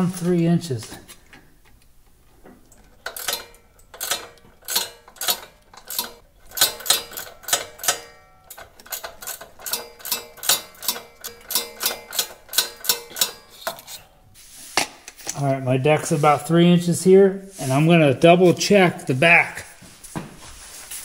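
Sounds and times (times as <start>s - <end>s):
ratcheting wrench clicking: 2.7s - 14.0s.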